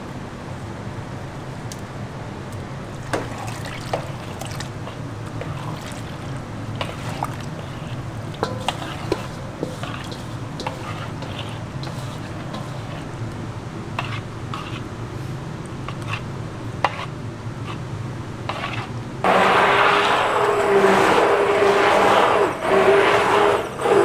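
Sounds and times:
steady low hum: 0.0s - 24.0s
spatula knocking and scraping bowl: 3.1s - 13.1s, 14.0s - 14.8s, 16.8s - 17.8s, 18.5s - 24.0s.

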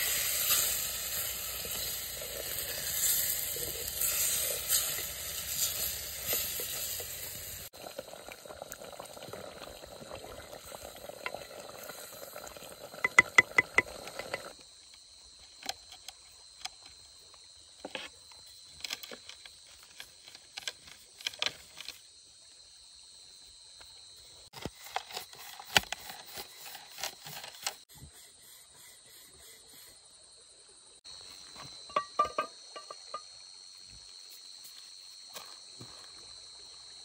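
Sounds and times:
insect trill: 0.0s - 37.0s
sharp clicks and knocks: 13.0s - 14.6s.

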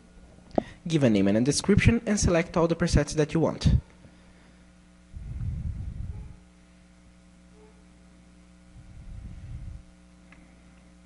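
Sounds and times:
electrical mains hum: 0.0s - 11.0s
low muffled rumbles: 5.0s - 6.5s, 8.7s - 10.0s.

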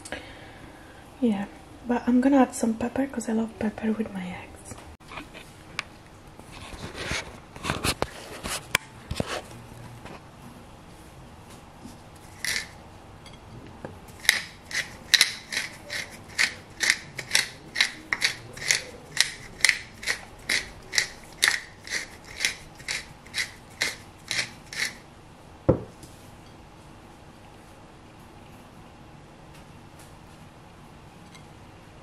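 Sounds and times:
pepper mill grinding: 12.2s - 12.8s, 14.1s - 25.0s.

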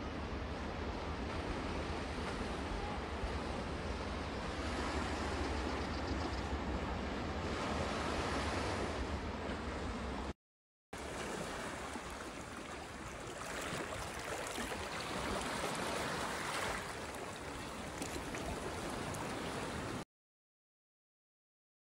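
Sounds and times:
wind: 0.0s - 10.4s, 11.0s - 20.0s
water rushing: 11.0s - 20.0s.

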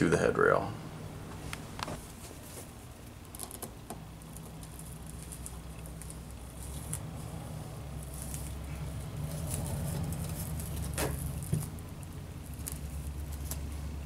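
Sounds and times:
steady low hum: 0.0s - 14.0s
velcro strip crackling: 3.2s - 14.0s.

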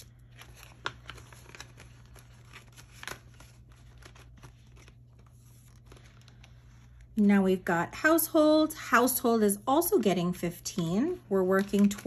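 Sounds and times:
paper banknotes and plastic rustling: 0.0s - 7.2s, 10.6s - 12.0s.

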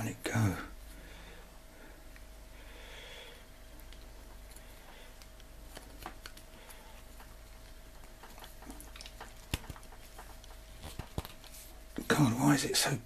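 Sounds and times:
plastic parts clicking and rubbing: 3.8s - 11.6s.

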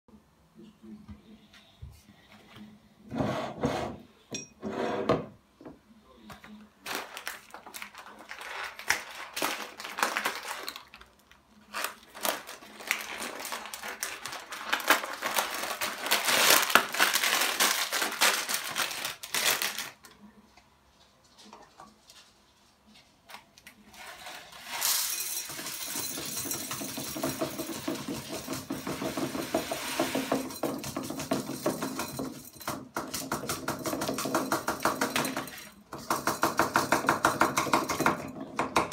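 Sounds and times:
plastic bag rustling and crinkling: 6.8s - 20.2s.

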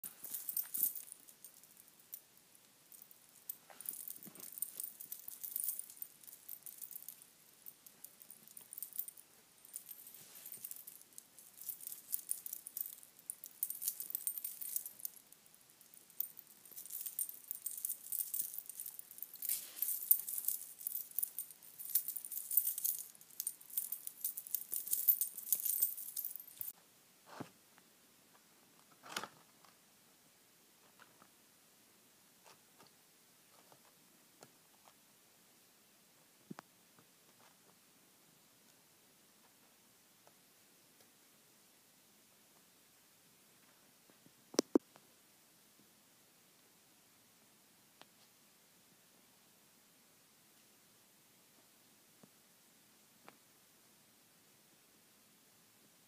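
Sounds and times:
metal bangles jingling: 0.0s - 26.8s.

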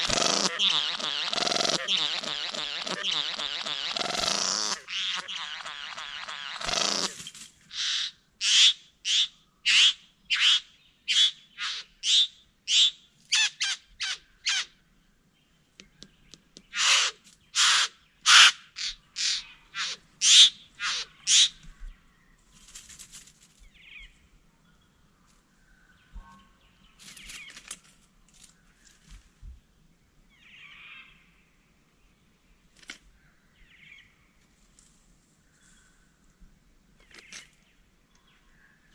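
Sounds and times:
bird harsh calls: 0.0s - 14.8s, 16.1s - 21.6s
rustling: 22.4s - 23.7s.

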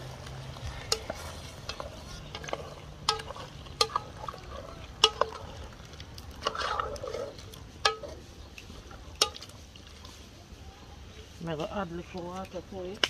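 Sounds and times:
spatula scraping pot: 0.6s - 9.5s.

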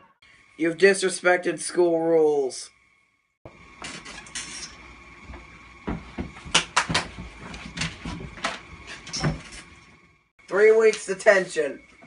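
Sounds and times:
sharp knocks and thumps: 5.2s - 9.7s.

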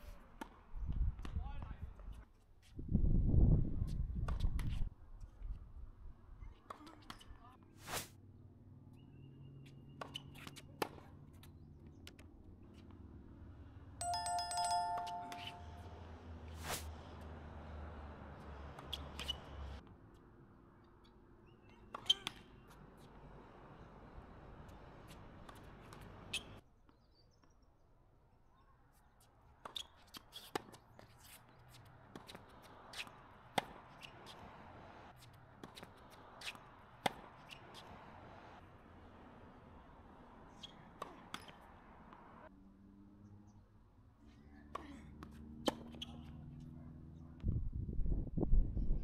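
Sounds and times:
bell ringing in rapid trill: 14.0s - 16.0s.

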